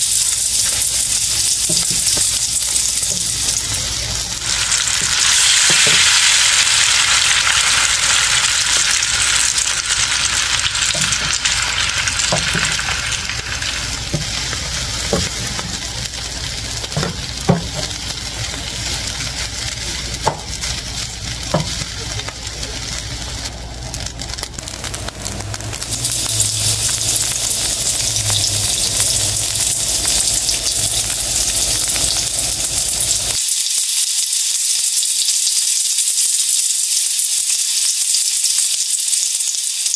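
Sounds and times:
rice sizzling in a pan: 0.0s - 39.9s.

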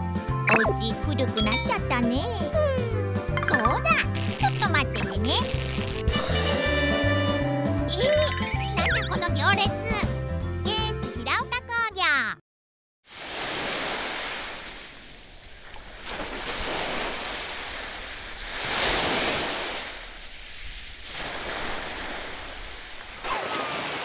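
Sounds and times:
sea waves washing on beach: 13.1s - 24.0s.

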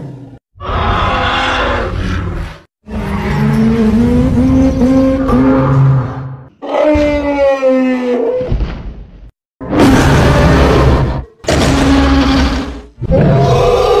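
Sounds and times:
monster roaring: 0.0s - 2.7s, 9.6s - 14.0s.

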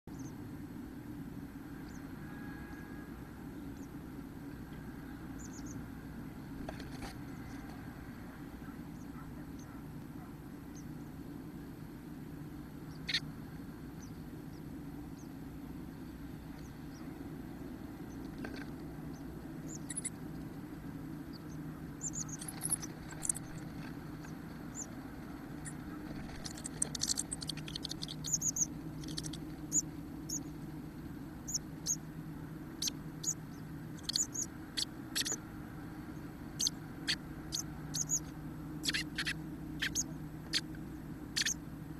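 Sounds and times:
steady low hum: 0.0s - 41.9s
high squeaky chick calls: 12.9s - 13.3s, 19.6s - 20.2s, 21.3s - 23.7s, 25.6s - 30.5s, 31.5s - 32.0s, 32.7s - 35.4s, 36.5s - 41.6s.

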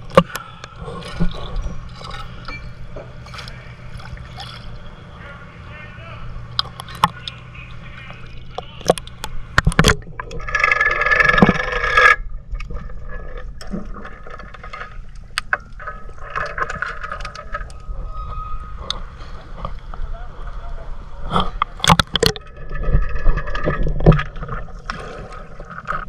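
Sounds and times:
underwater clicks and crackles: 0.0s - 4.9s, 6.5s - 17.9s, 18.8s - 20.1s, 21.2s - 26.0s
water sloshing and splashing: 0.0s - 5.1s, 6.4s - 17.9s, 21.3s - 26.0s
muffled underwater sound: 0.0s - 14.9s
low hum: 0.0s - 26.0s.

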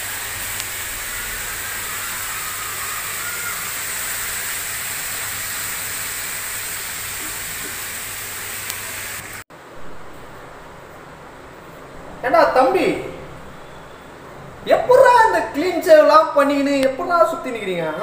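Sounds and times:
potatoes sizzling in oil: 0.0s - 9.4s.

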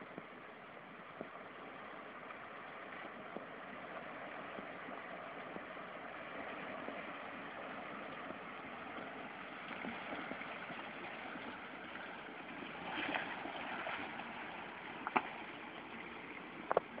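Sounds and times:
water churned by wheels: 0.0s - 17.0s.

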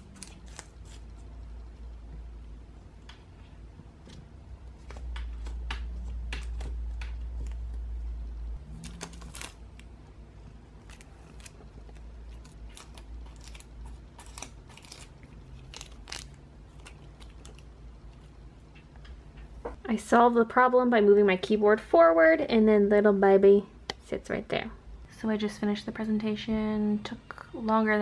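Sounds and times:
cat chewing paper: 8.7s - 18.3s.

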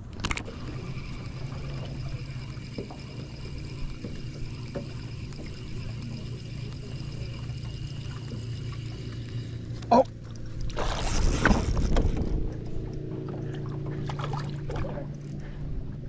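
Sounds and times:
electric trolling motor hum: 0.0s - 16.0s
faint high whine: 0.3s - 10.2s
spinning reel ticking: 0.6s - 9.6s.

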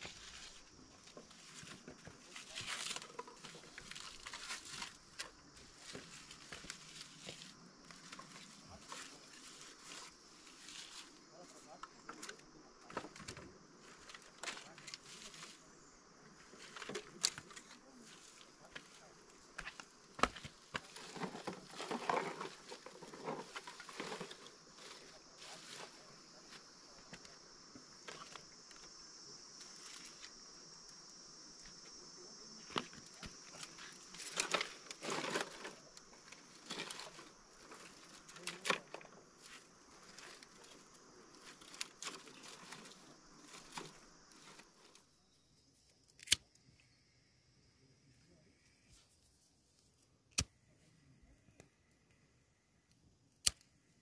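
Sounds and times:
faint rustling and crinkling: 0.0s - 46.9s, 48.0s - 52.2s
small clicks: 46.0s - 46.9s.

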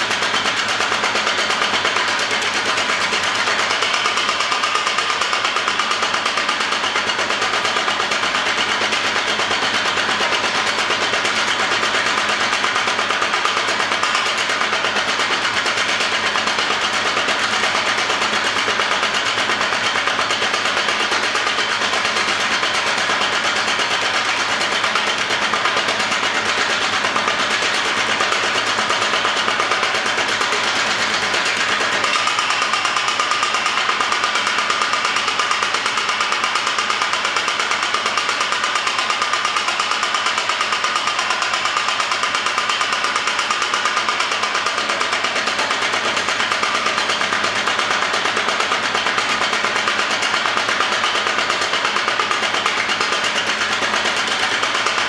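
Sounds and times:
power hammer striking rapidly: 0.0s - 55.0s.

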